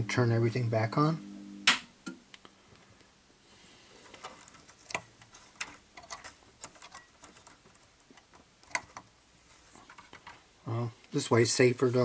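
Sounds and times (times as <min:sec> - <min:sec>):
light clicks and rattles of wiring: 0:04.0 - 0:10.4.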